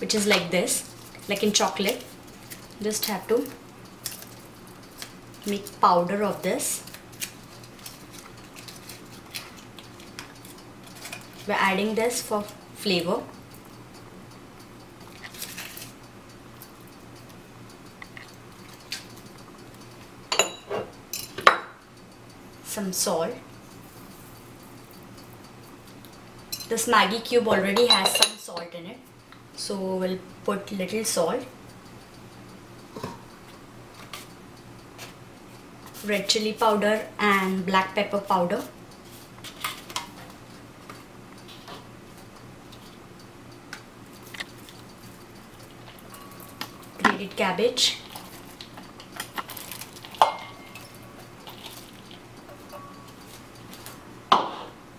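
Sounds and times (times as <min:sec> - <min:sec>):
low steady hum: 0:00.0 - 0:54.9
foil wrapper crinkling: 0:06.8 - 0:11.4, 0:48.0 - 0:50.2, 0:51.4 - 0:52.2
dishes tapping on counter: 0:54.3 - 0:54.8.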